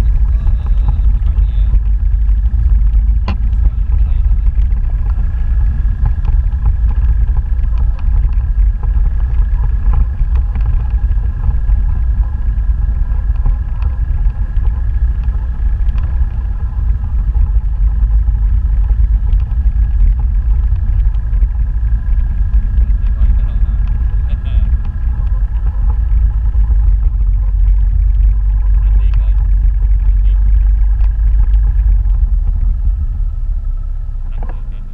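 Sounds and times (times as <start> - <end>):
small ticks and rattles: 0.0 - 32.9
motorbike engine running: 0.0 - 34.9
thin steady whine: 0.0 - 34.9
wind rumble on microphone: 0.0 - 34.9.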